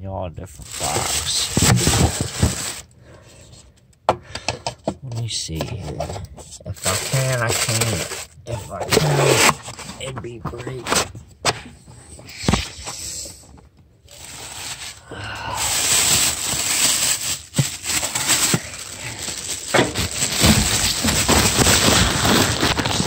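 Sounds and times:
plastic wrapping crinkling: 0.6s - 2.9s, 6.8s - 9.5s, 14.1s - 23.0s.

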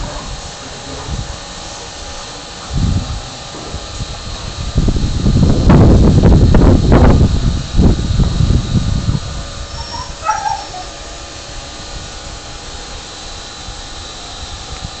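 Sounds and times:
low rumble: 2.0s - 15.0s
dog whimpering: 9.7s - 11.0s.

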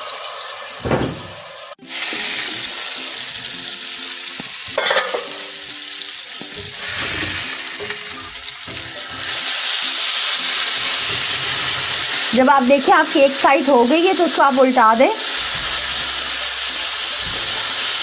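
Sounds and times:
fish sizzling in hot oil: 0.0s - 18.0s.

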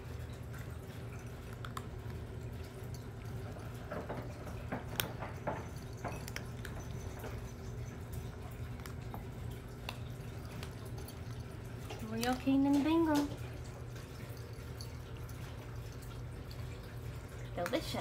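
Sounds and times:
cats crunching dry kibble: 0.0s - 18.0s
steady low hum: 0.0s - 18.0s.

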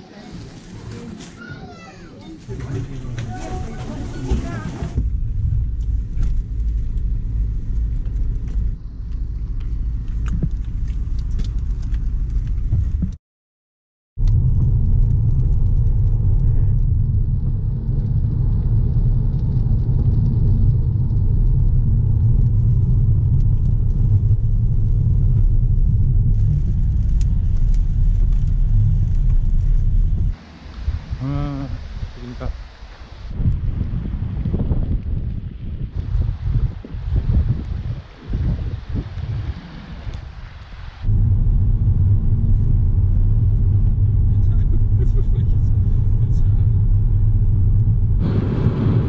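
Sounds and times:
car driving rumble inside cabin: 2.4s - 13.1s, 14.2s - 30.4s, 41.1s - 49.0s.

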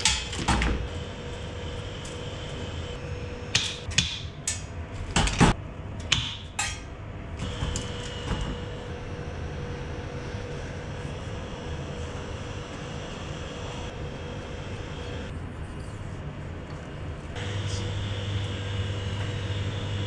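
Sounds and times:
mechanical drone: 0.0s - 3.9s, 7.3s - 15.9s, 17.4s - 20.0s
faint hum: 4.7s - 20.0s.

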